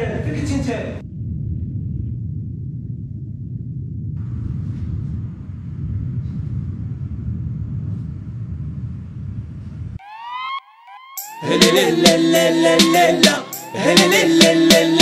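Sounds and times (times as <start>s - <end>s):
low steady rumble: 0.7s - 10.0s
music: 10.0s - 15.0s
short rising pitched sweeps: 10.0s - 15.0s.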